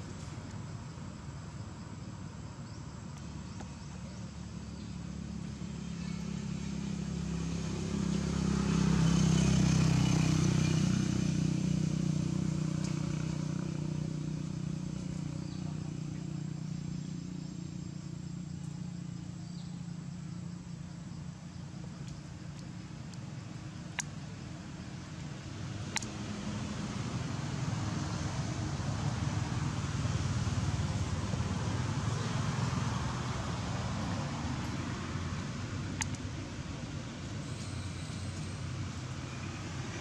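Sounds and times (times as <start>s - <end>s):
vehicle engine passing by: 3.9s - 19.2s, 24.8s - 40.0s.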